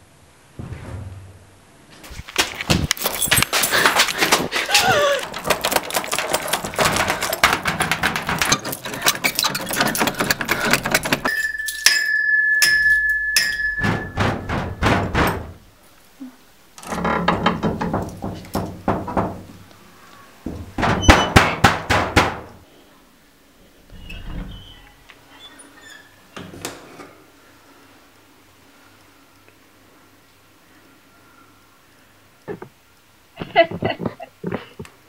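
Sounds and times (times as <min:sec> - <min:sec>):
rapid clattering knocks: 0:02.4 - 0:11.3, 0:13.7 - 0:15.7, 0:17.2 - 0:19.7, 0:20.4 - 0:22.6.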